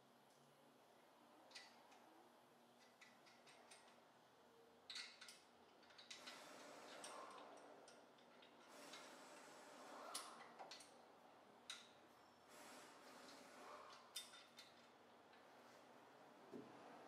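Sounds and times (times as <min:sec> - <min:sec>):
metallic clicks of hand tools: 0:02.8 - 0:04.0.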